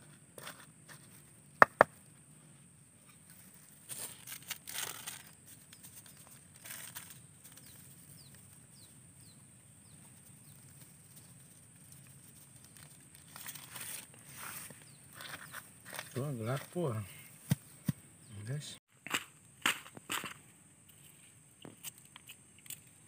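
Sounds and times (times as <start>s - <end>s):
rustling and brushing: 2.3s - 8.7s, 9.9s - 18.0s.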